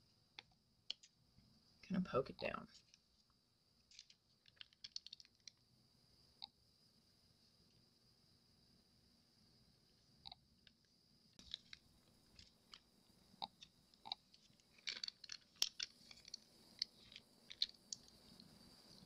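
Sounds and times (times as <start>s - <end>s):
plastic bag crinkling: 3.9s - 5.5s, 14.4s - 18.1s.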